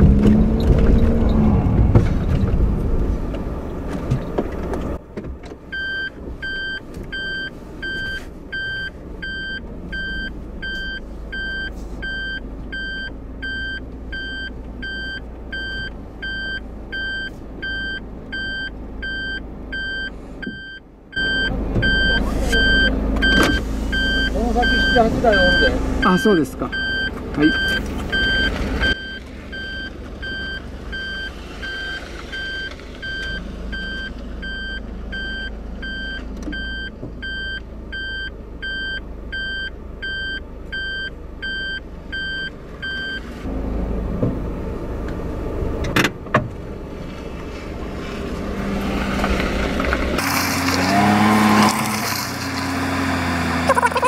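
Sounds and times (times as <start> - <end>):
engine idling hum: 0.0 - 50.5
reverse warning beeper: 5.7 - 43.2
vehicle passing by: 47.0 - 53.8.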